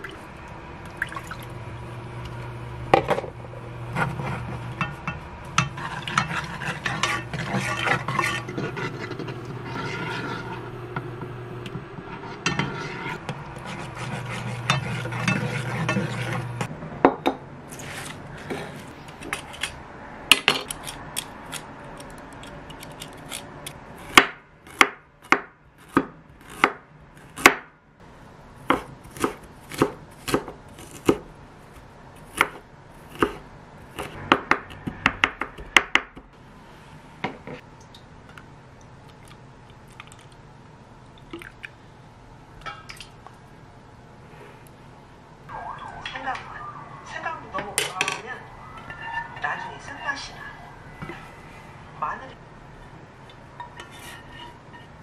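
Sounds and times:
low hum: 0.0s - 17.6s, 45.0s - 53.7s.

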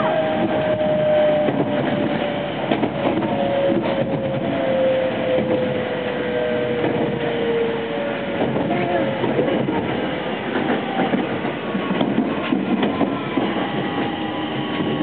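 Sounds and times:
wheels rumbling on rail: 0.0s - 15.0s
wheel clatter over rail joints: 8.2s - 15.0s.

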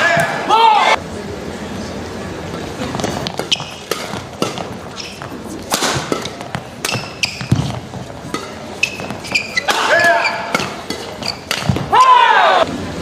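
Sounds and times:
crowd murmur: 0.0s - 13.0s
shoes squeaking on floor: 2.9s - 11.9s
rackets striking shuttlecock: 2.9s - 12.0s.

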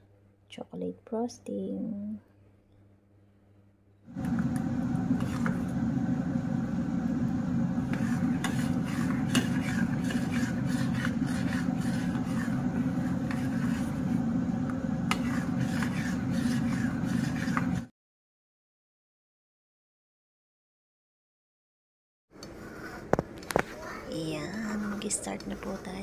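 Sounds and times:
low steady hum: 0.0s - 17.8s
metal spoon scraping saucepan: 5.2s - 5.7s, 7.8s - 14.2s, 15.0s - 17.9s.

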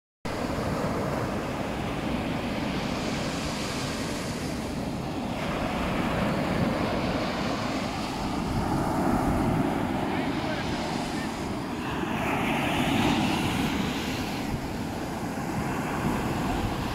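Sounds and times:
small waves breaking on sand: 0.3s - 16.9s.

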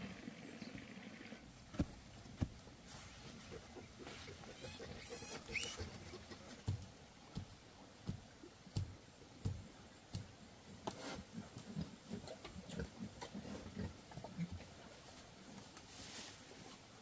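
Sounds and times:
pigs grunting: 3.4s - 6.5s.

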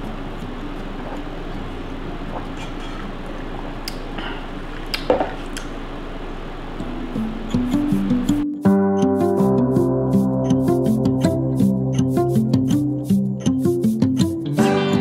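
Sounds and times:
background hiss: 0.0s - 15.0s
swallowing sounds: 2.3s - 3.1s.

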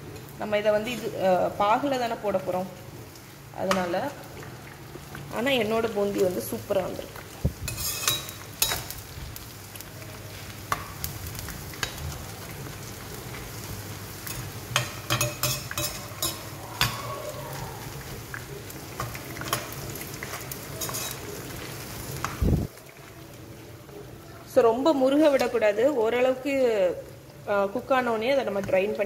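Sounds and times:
batter drops sizzling in oil: 6.4s - 23.5s
metal ladle scraping a wok: 7.7s - 8.8s, 20.8s - 21.3s.

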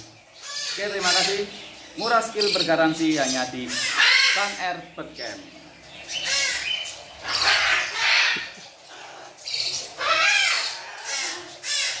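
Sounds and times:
cockatoo screeching: 0.4s - 1.5s, 3.2s - 4.6s, 6.2s - 12.0s.

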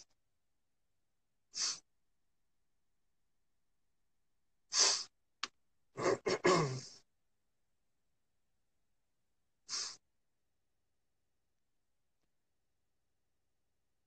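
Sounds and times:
man breathing close to microphone: 9.6s - 10.0s.

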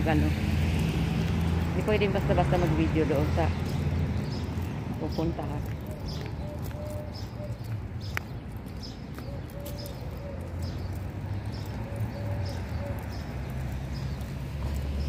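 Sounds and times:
footsteps on pavement: 0.0s - 15.0s
dove cooing: 5.9s - 7.7s, 9.2s - 10.8s, 11.8s - 13.3s.

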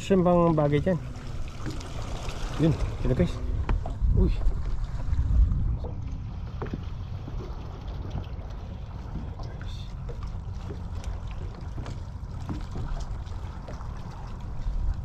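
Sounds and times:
steady low rumble: 0.0s - 15.0s
water lapping against boat hull: 0.0s - 15.0s.

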